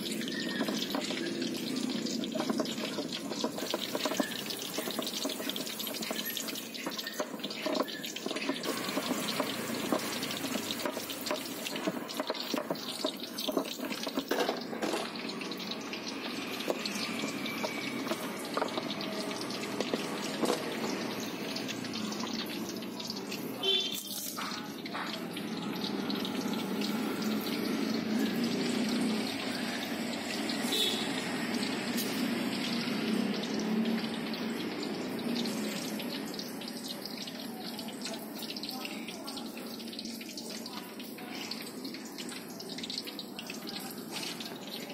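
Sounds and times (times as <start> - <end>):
stone pestle grinding wet sauce: 0.0 - 15.1.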